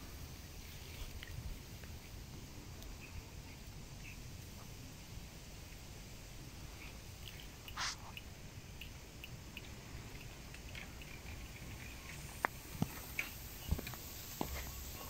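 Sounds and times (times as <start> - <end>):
faint scattered ticks: 0.1 - 15.0
short rustle: 7.7 - 8.1.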